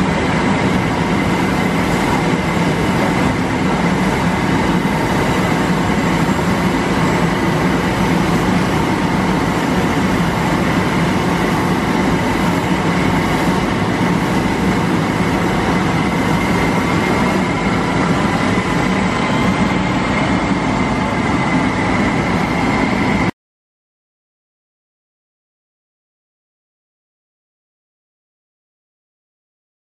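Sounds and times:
machinery high whine: 0:00.0 - 0:23.3
machinery low hum: 0:00.0 - 0:23.3.

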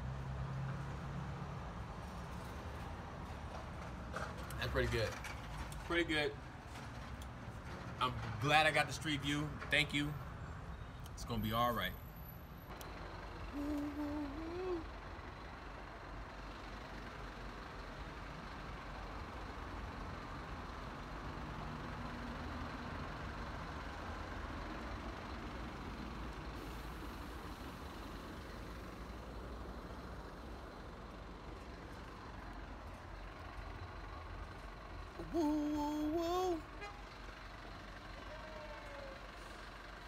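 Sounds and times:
city street traffic hum: 0:00.0 - 0:40.0.

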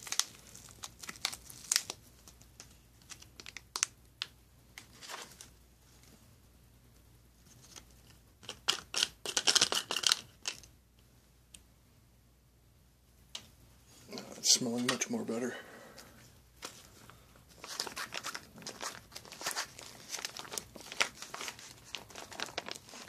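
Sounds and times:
food packaging crinkling: 0:00.0 - 0:05.5, 0:07.5 - 0:10.7, 0:16.6 - 0:23.0.

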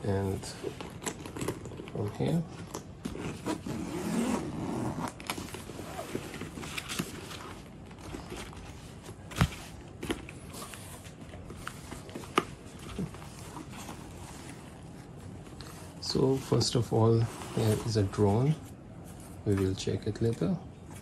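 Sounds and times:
scraping and rustling of bag: 0:00.0 - 0:19.8
bag zipper being pulled open: 0:03.3 - 0:05.2.

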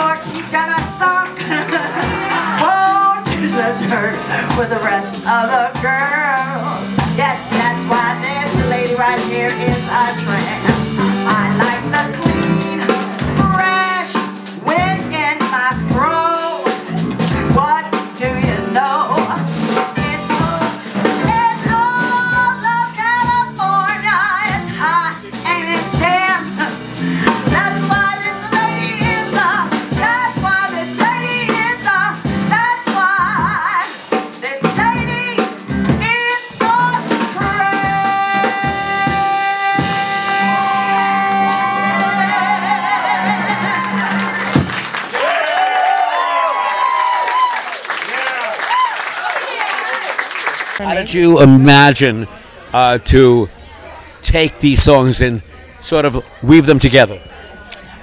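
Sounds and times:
woman singing with vibrato: 0:00.0 - 0:44.5
band with drums and guitar: 0:00.0 - 0:52.1.

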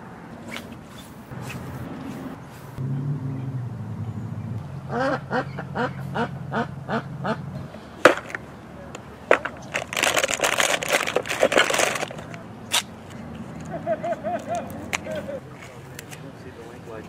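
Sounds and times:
plastic packaging crinkling: 0:09.4 - 0:12.4.

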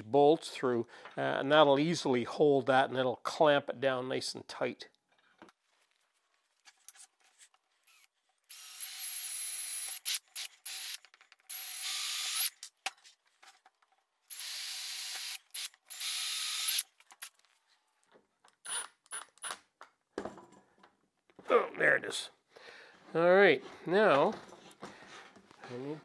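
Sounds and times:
impact driver drilling through wood: 0:07.8 - 0:12.7, 0:14.3 - 0:16.9, 0:18.6 - 0:19.2.

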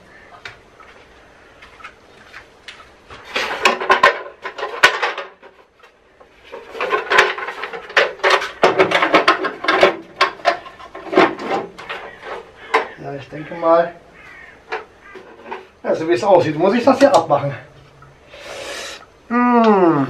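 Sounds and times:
plastic hood clattering on metal: 0:03.2 - 0:05.6, 0:06.5 - 0:13.0.

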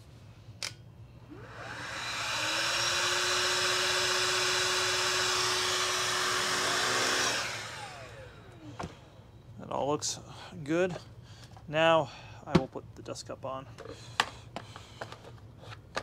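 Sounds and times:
stick vacuum motor running: 0:01.2 - 0:09.0.

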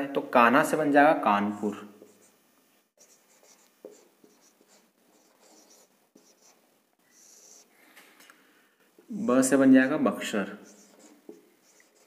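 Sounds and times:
marker pen writing on whiteboard: 0:02.0 - 0:02.4, 0:03.0 - 0:07.7, 0:10.6 - 0:12.0.

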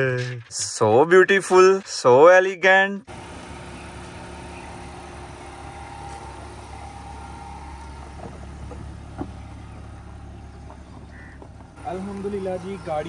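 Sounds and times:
vehicle humming: 0:03.1 - 0:13.0.

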